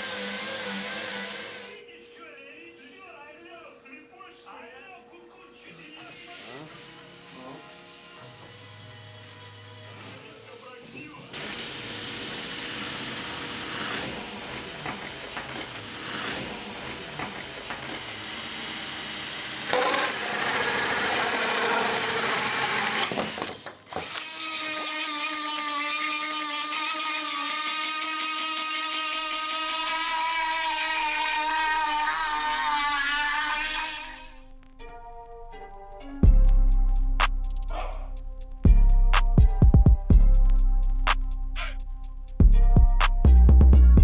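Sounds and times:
drill grinding with cup brush: 0:00.0 - 0:01.8, 0:11.0 - 0:34.4
rotary tool high whine: 0:00.0 - 0:01.8, 0:06.1 - 0:34.4.

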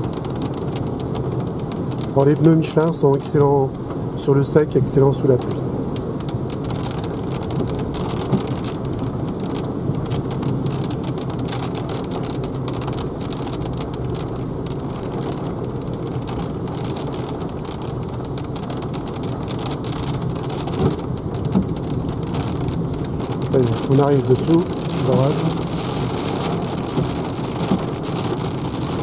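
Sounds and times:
rain on car windscreen: 0:00.0 - 0:29.0
tyre and road noise: 0:00.0 - 0:29.0.

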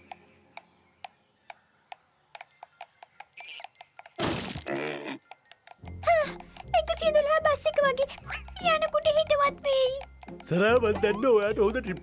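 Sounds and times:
sharp clock-like ticking: 0:05.2 - 0:12.0.

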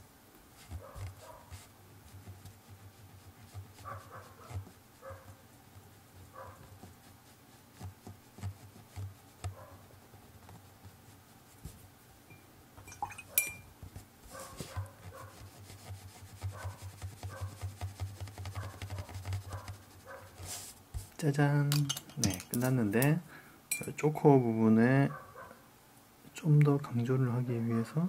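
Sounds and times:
watercolour brush on paper: 0:00.5 - 0:12.0, 0:13.8 - 0:21.4
distant dogs barking: 0:00.8 - 0:01.5, 0:03.8 - 0:05.4, 0:06.3 - 0:06.7, 0:18.6 - 0:20.4, 0:25.1 - 0:25.7, 0:27.6 - 0:28.0
sharp clink: 0:12.3 - 0:13.7.

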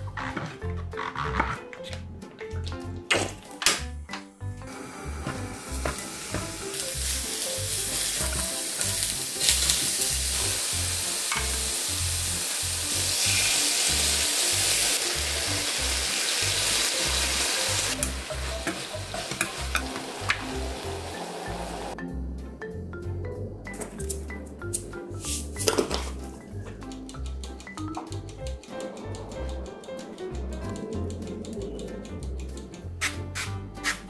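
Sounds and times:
background music with steady beat: 0:00.0 - 0:34.0
mushrooms sizzling in oil: 0:04.8 - 0:22.0.

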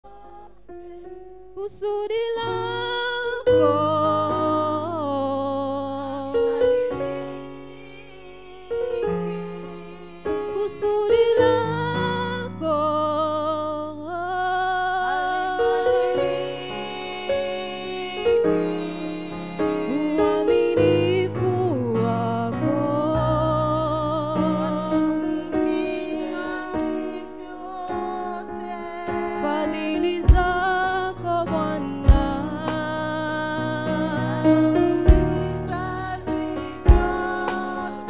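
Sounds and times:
women singing worship song: 0:00.0 - 0:38.0
held instrument chords: 0:15.4 - 0:38.0.

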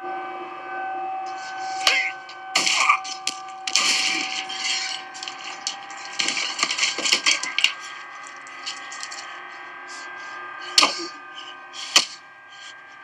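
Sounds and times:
faint steady hum: 0:00.8 - 0:13.0
crunching cracking impacts: 0:01.3 - 0:10.0, 0:10.6 - 0:12.2.

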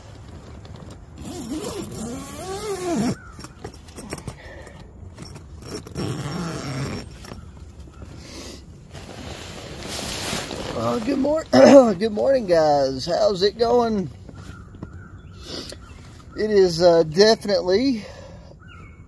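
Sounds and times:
fabric rustling: 0:08.8 - 0:12.1.

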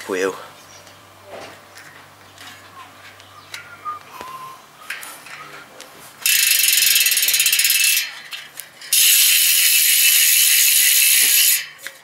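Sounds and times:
bike hub ratcheting buzz: 0:06.2 - 0:12.0.

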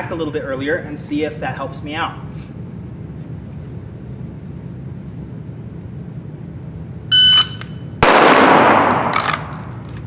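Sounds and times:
shot timer beep: 0:07.1 - 0:07.8
pistol shot echoing indoors: 0:08.0 - 0:09.5.

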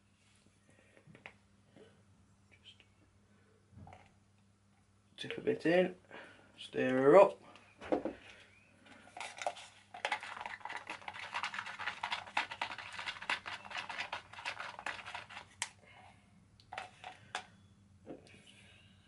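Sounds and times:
stirrer scraping plastic cup: 0:09.2 - 0:15.6.

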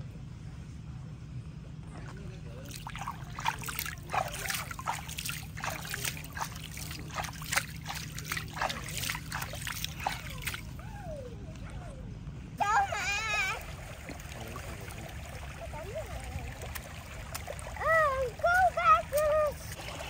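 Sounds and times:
water dripping into stream: 0:16.4 - 0:19.4.

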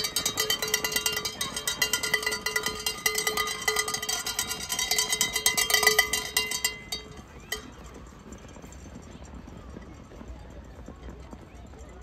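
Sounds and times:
cowbell rung rapidly: 0:00.0 - 0:09.2.

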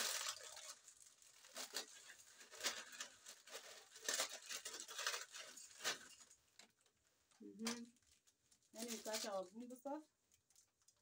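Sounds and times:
plastic sachets crinkling and tearing: 0:00.0 - 0:11.0.

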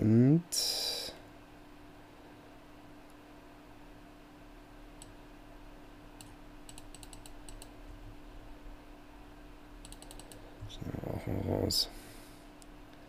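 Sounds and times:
steady low hum: 0:00.0 - 0:13.0
keyboard keystrokes: 0:06.2 - 0:07.7, 0:09.8 - 0:10.4.

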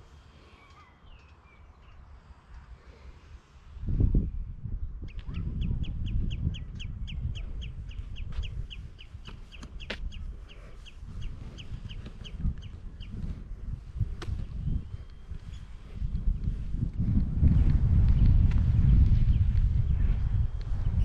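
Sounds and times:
wind buffeting microphone: 0:00.9 - 0:21.0.

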